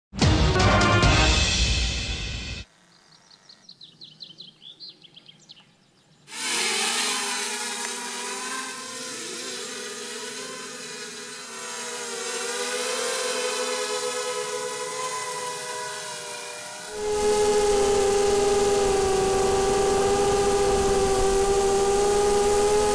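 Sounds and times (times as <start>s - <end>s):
faint bird chirps: 2.8s - 6.3s
quadcopter motors buzzing whine: 6.3s - 22.9s.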